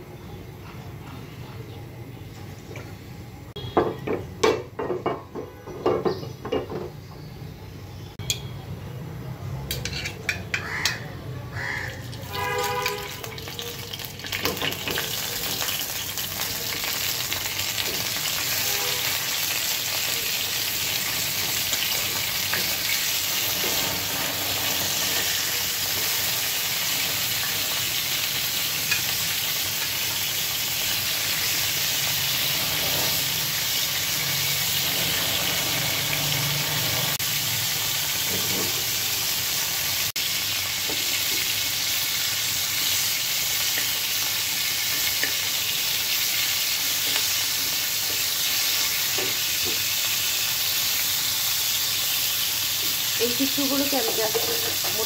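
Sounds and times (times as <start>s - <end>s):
metal spatula scraping pan: 9.7s - 11.1s, 23.4s - 25.4s
meat sizzling in oil: 11.6s - 55.0s.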